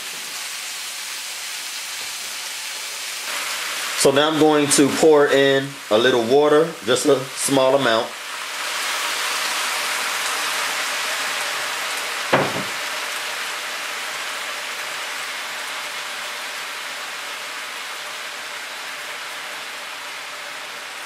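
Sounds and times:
water sizzling in skillet: 0.0 - 21.0
short knock: 12.3 - 12.8.

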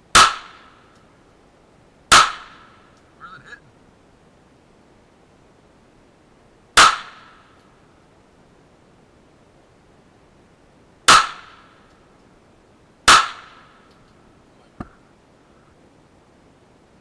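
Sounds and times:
pistol shots with ringing echo: 0.1 - 0.8, 2.1 - 2.8, 6.8 - 7.6, 11.1 - 11.8, 13.1 - 13.8.

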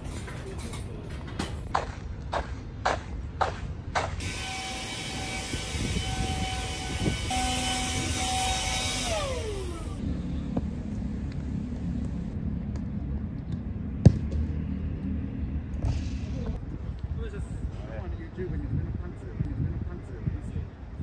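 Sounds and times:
high machine-like whine: 4.2 - 12.3.

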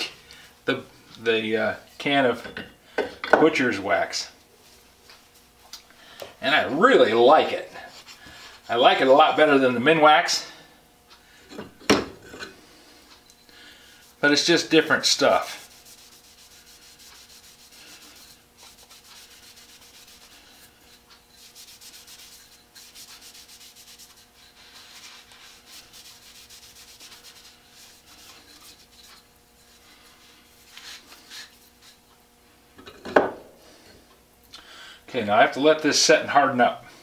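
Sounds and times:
faint steady hum: 0.0 - 37.0
cloth rubbing wood: 14.0 - 32.1.

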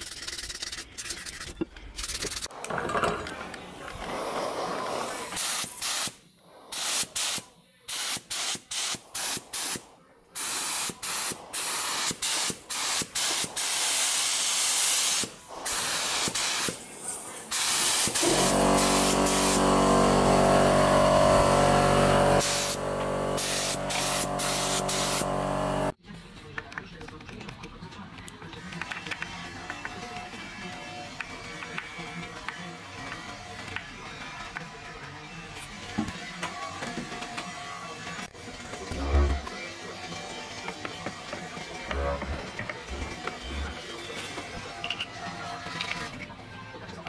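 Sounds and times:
spray gun hissing bursts: 5.4 - 6.1, 6.7 - 9.8, 10.4 - 25.9
loud steady hum: 18.2 - 25.9.

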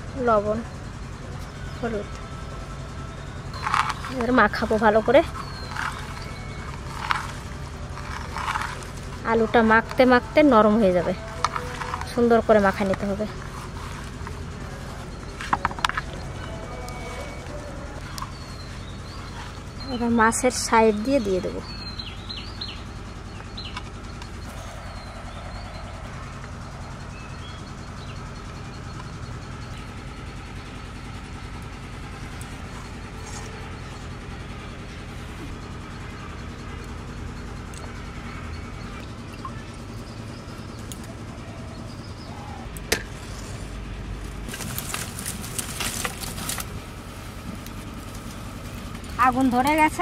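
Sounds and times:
engine humming: 0.0 - 50.0
bird chirps: 0.3 - 29.9, 36.2 - 43.6
fire crackling: 42.8 - 50.0.

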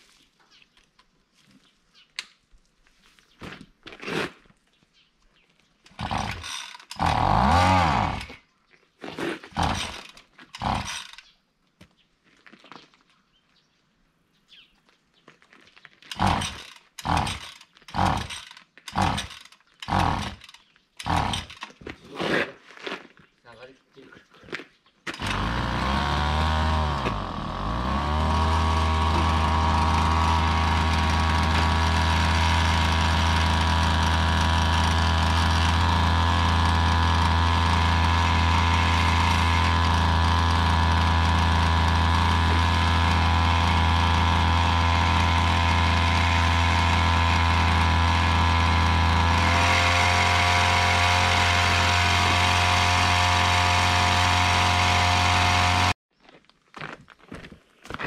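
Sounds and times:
small engine running: 5.9 - 8.4, 9.5 - 11.3, 16.1 - 21.8, 25.1 - 56.0.

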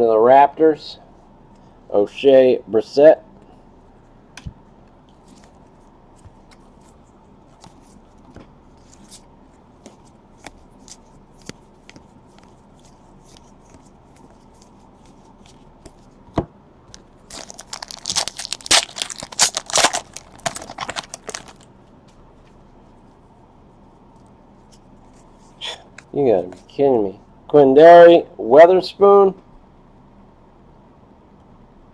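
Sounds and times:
trading cards flipped through: 5.1 - 16.1, 16.9 - 21.6
card pack wrapper tearing: 16.9 - 21.6.

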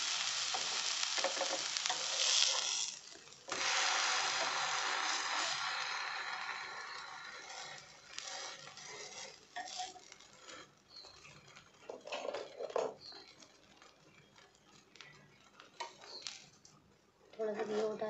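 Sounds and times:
hiss: 0.0 - 9.0
metal spatula scraping griddle: 0.2 - 13.1.

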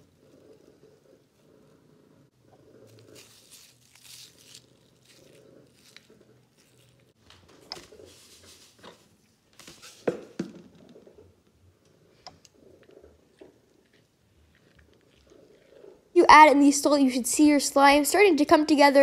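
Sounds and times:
aluminium foil crinkling: 2.9 - 7.2.

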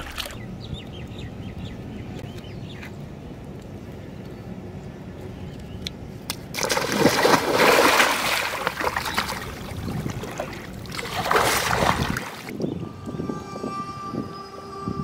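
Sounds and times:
water splashing and sloshing: 0.0 - 0.4, 5.5 - 12.6.

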